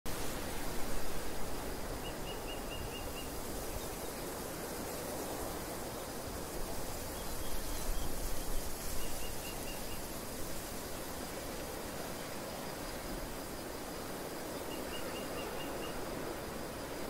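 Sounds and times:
bird chirping: 0:14.6 - 0:16.0.

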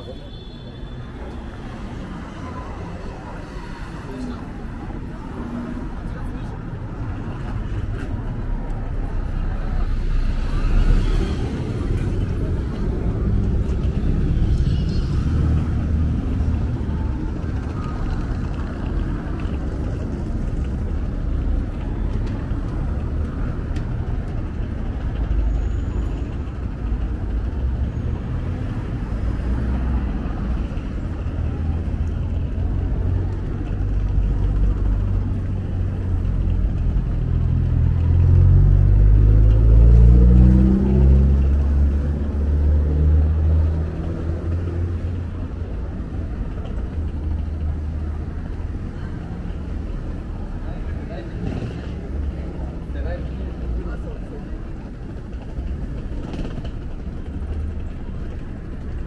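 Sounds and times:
city traffic rumble: 0:00.0 - 0:59.0
vehicle engine accelerating: 0:09.4 - 0:45.7.

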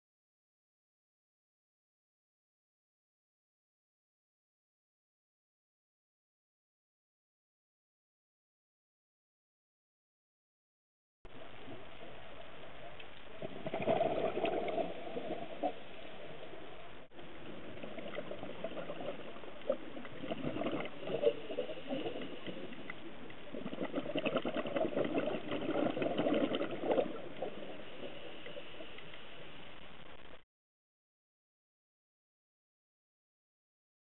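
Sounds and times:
underwater exhaled bubbles: 0:11.3 - 0:29.8
steady hiss: 0:27.1 - 0:30.4.

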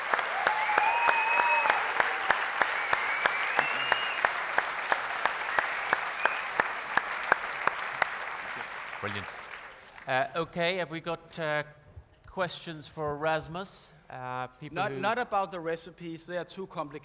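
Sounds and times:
audience applauding: 0:00.0 - 0:10.2
drawn-out cheers: 0:00.1 - 0:04.3.

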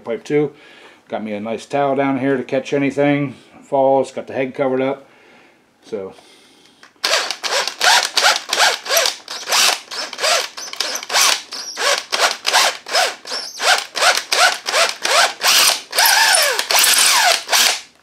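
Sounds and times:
drill motor whining in bursts: 0:07.0 - 0:17.8
drill boring into metal: 0:07.0 - 0:17.9.

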